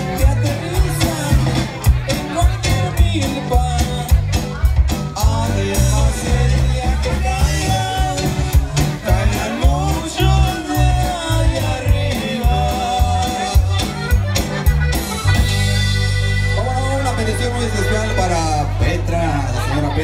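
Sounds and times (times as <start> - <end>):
bouncing bass line: 0.0 - 20.0
live band playing: 0.0 - 20.0
person singing: 5.1 - 14.0.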